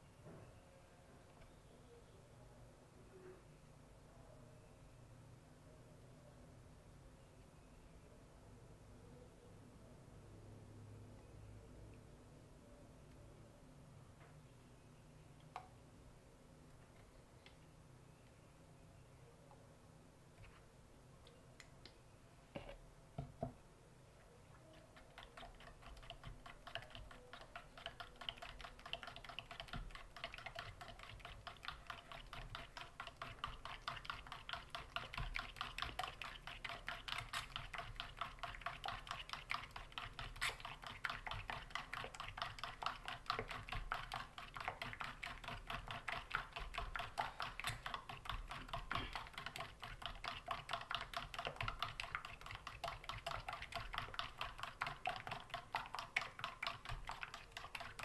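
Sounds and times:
whisk clicking against metal bowl: 0:24.7 - 0:58.0.

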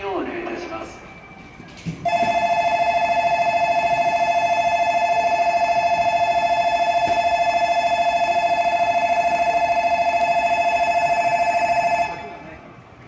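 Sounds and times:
electronic two-tone bell trilling: 0:02.0 - 0:12.4.

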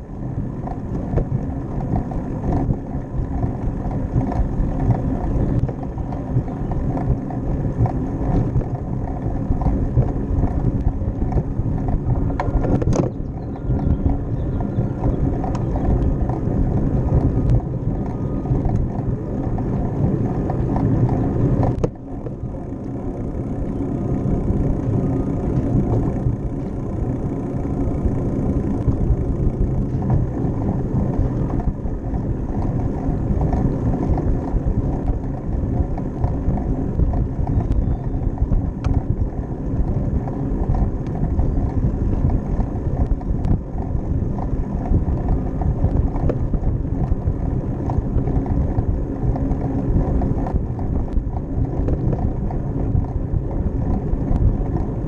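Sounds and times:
bicycle tyre rumble: 0:00.0 - 0:55.0
wind rushing over microphone: 0:00.0 - 0:55.0.

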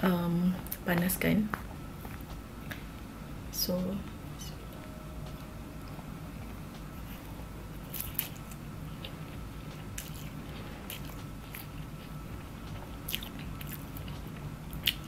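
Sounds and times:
low steady hum: 0:00.0 - 0:15.0
person chewing food: 0:05.4 - 0:15.0.

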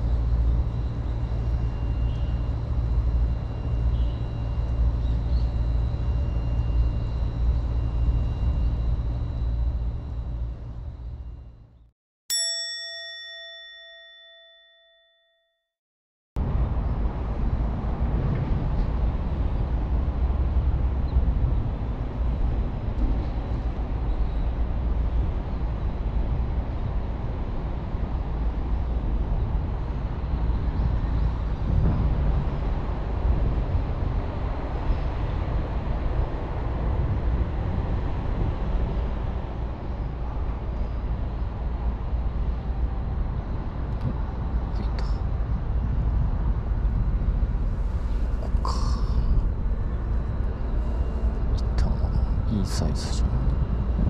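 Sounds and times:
low outdoor rumble: 0:00.0 - 0:11.8, 0:16.4 - 0:54.0
bell-like chime: 0:12.3 - 0:15.6.

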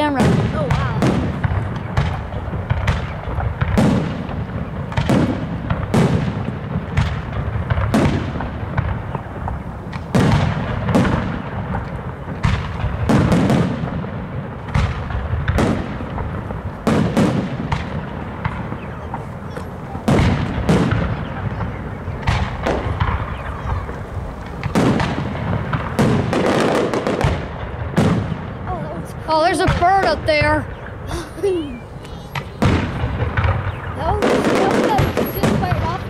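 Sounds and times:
fireworks shells bursting: 0:29.4 - 0:36.0.

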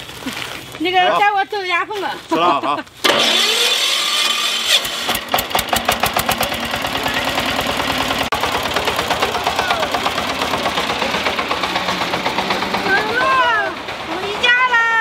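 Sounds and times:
tractor diesel engine chugging: 0:03.0 - 0:15.0.

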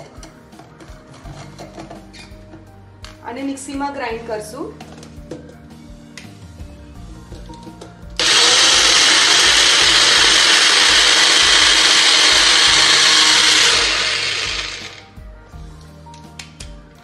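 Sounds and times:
mixer grinder motor grinding: 0:08.2 - 0:15.0.

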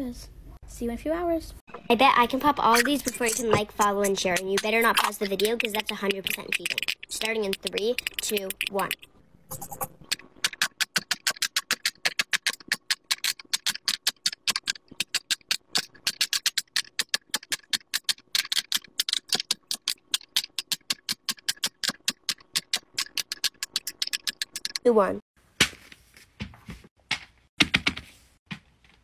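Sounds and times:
fidget toy bubbles popping: 0:02.8 - 0:09.0.

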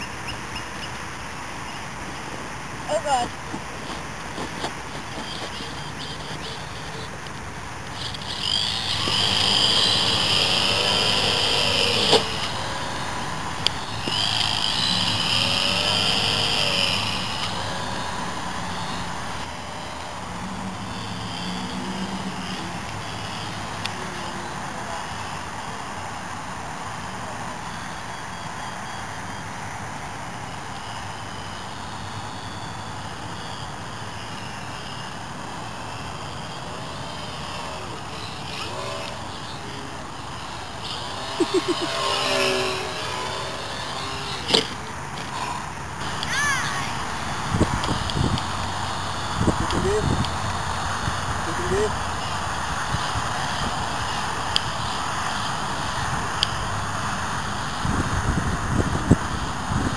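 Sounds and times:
model airplane motor whining: 0:00.0 - 0:59.9
steady rushing noise: 0:42.5 - 0:59.9.

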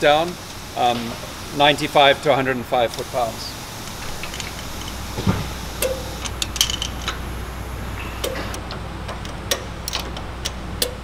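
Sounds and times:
wrench ratchet clicking: 0:08.2 - 0:11.0.

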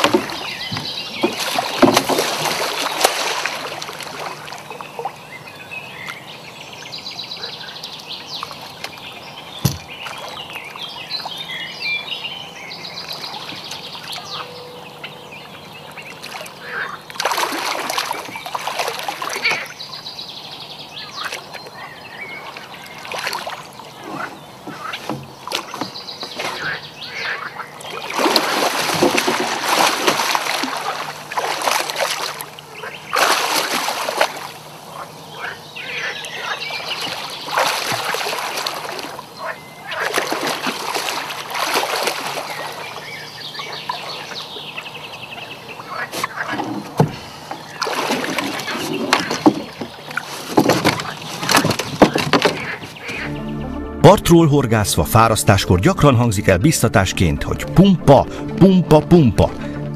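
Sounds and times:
fish thrashing and splashing: 0:00.0 - 0:05.2, 0:16.2 - 0:19.9, 0:22.4 - 0:26.9, 0:27.6 - 0:35.6, 0:36.4 - 0:44.7, 0:46.0 - 0:53.2.

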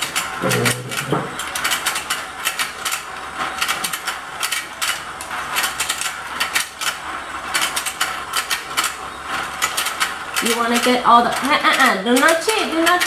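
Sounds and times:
toy plastic gears clicking: 0:00.0 - 0:13.0.

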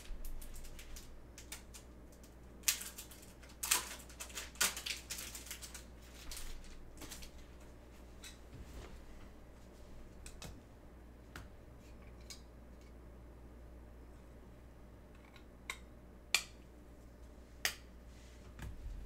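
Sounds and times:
cards clicking and rustling: 0:00.2 - 0:07.4.

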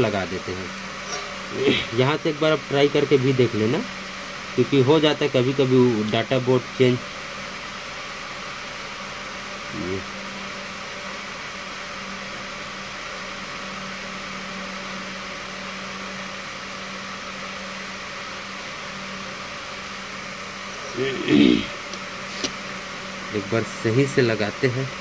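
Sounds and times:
low hum with hiss: 0:00.0 - 0:25.0
brief vocal sound: 0:20.9 - 0:21.8.

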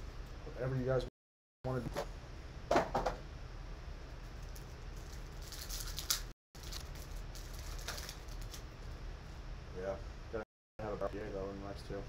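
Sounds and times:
foil wrapper crinkling: 0:04.4 - 0:08.7
steady low hum: 0:06.6 - 0:12.0.

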